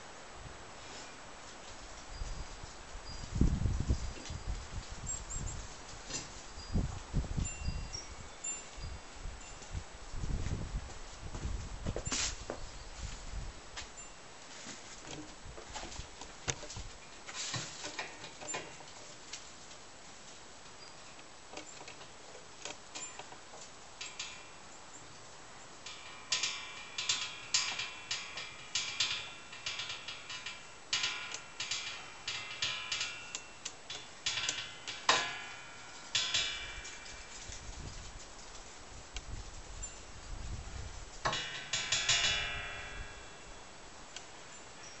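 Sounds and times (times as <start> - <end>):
metal chain clicking and clinking: 25.8 - 37.7, 41.2 - 43.7.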